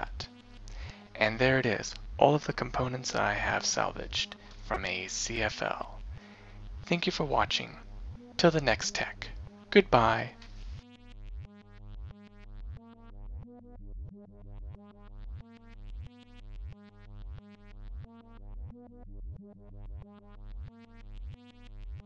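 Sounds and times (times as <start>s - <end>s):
pulsing bass beat: 0.0s - 2.9s, 3.5s - 11.4s.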